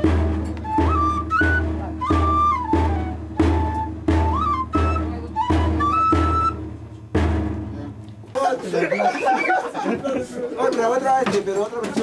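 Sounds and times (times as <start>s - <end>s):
flute melody: 0.0s - 7.0s
drum beat: 0.0s - 12.0s.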